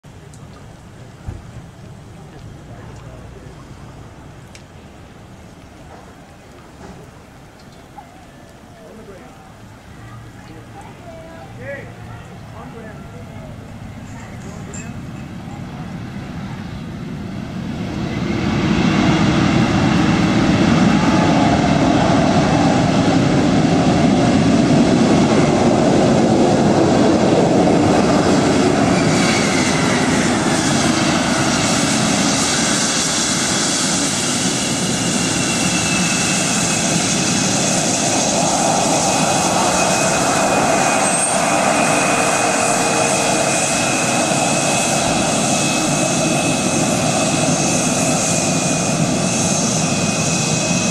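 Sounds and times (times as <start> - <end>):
jet engines rushing: 10.6 - 50.9.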